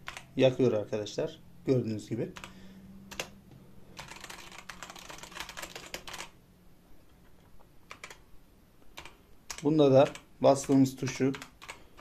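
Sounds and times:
mechanical keyboard keystrokes: 4.0s - 6.3s, 7.9s - 8.2s, 9.0s - 12.0s.

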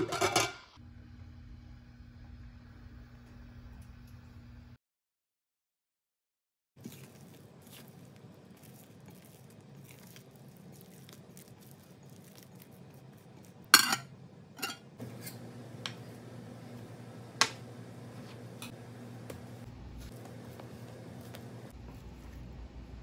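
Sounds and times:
low steady hum: 11.4s - 23.0s
plate clinking on glass bowl: 13.8s - 15.4s
spatula scraping dough in bowl: 14.6s - 21.8s.

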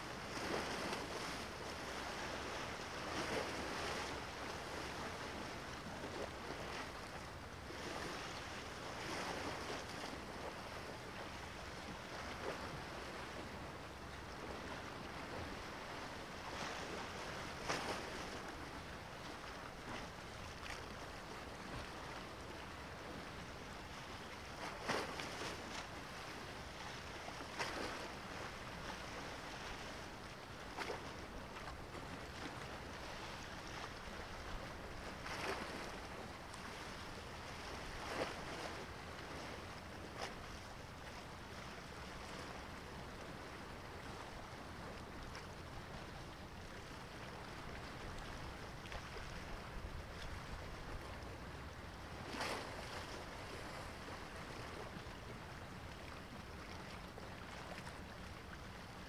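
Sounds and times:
hiss of wind and sea: 0.0s - 59.0s
small waves splashing: 0.0s - 59.0s.

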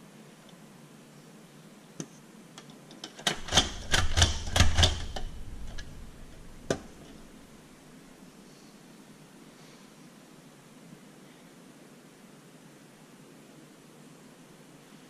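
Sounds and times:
metal utensil clicking on paper: 2.9s - 7.4s.

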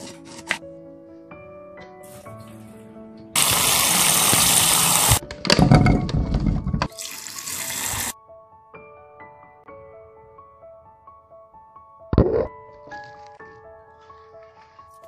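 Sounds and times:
soft background music: 0.0s - 15.0s
tap water running: 3.4s - 5.2s, 6.8s - 8.2s.

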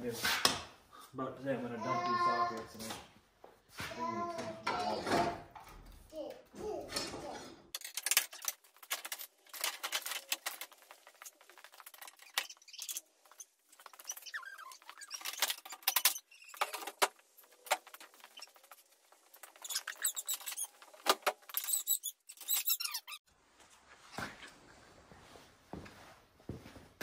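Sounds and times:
metal tools clinking and rattling: 6.9s - 18.8s
short squeaks: 11.8s - 16.9s, 17.8s - 23.2s.

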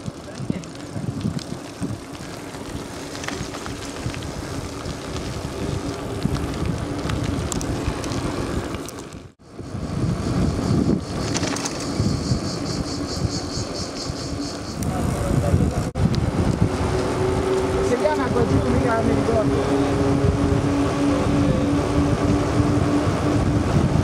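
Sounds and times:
bike tyre rumble on road: 0.0s - 24.0s
wind buffeting microphone: 0.0s - 24.0s
high pulsing buzz: 9.4s - 15.4s.

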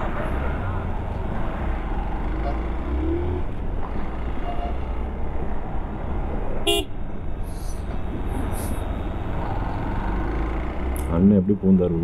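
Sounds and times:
highway traffic rumble: 0.0s - 12.0s
vehicle horn beep: 4.4s - 4.9s, 6.7s - 7.0s.

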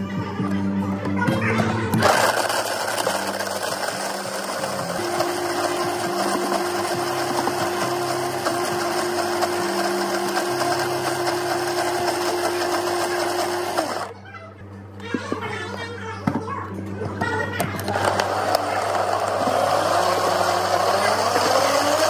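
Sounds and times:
blender blending ice: 1.9s - 14.1s, 17.8s - 22.0s.

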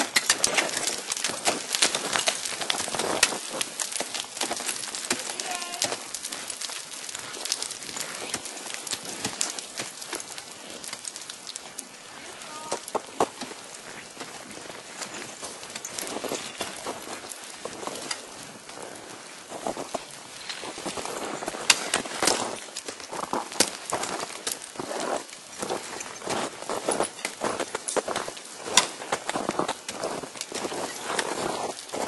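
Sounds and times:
ice tools striking ice: 0.0s - 11.3s, 20.4s - 24.7s.

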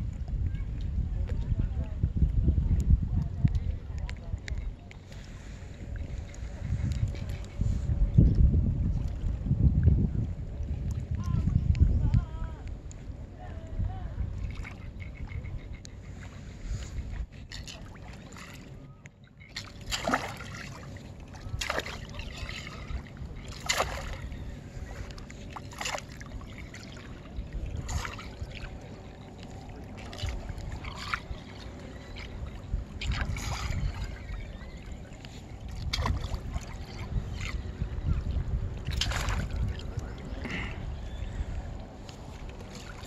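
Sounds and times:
wind buffeting microphone: 0.0s - 18.9s, 19.8s - 43.0s
small water splashes: 14.3s - 15.7s, 17.0s - 43.0s.

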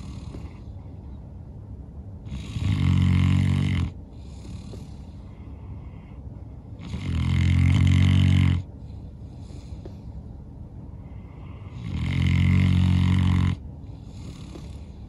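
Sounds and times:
dog snoring loudly: 0.0s - 0.7s, 2.2s - 6.1s, 6.8s - 8.7s, 11.0s - 15.0s
dog breathy exhales: 4.1s - 5.8s.

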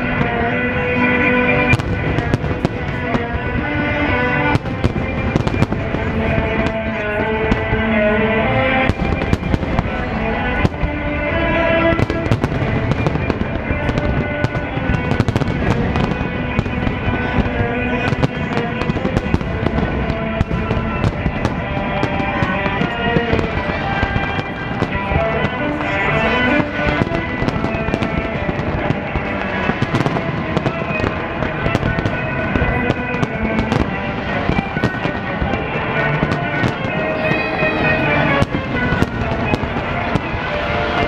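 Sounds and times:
fireworks bursting: 0.0s - 41.0s
music with sustained notes: 0.0s - 41.0s.

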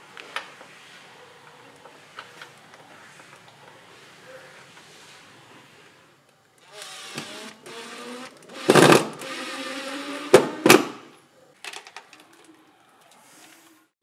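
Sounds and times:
cordless drill driving screws: 6.6s - 10.5s.

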